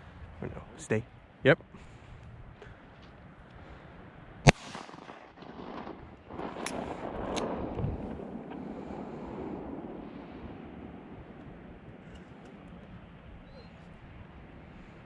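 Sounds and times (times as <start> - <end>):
wind buffeting microphone: 0.0 - 15.0
sharp clicks: 6.6 - 7.5.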